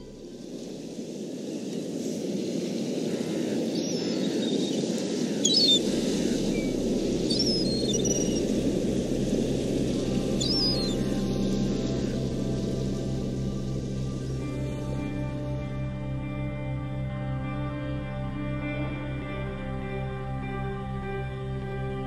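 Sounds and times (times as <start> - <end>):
high bird chirps: 10.4 - 11.0.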